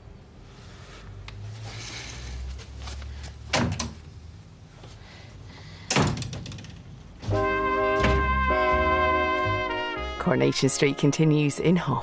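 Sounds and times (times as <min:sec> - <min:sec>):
dull thump: 0:07.2 - 0:08.8.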